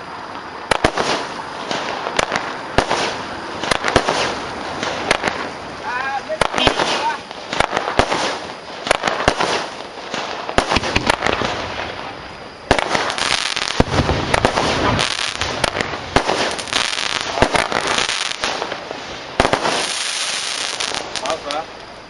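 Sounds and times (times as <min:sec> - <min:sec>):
fireworks crackle: 0:00.0 - 0:22.0
fireworks pops: 0:00.2 - 0:05.6, 0:06.2 - 0:22.0.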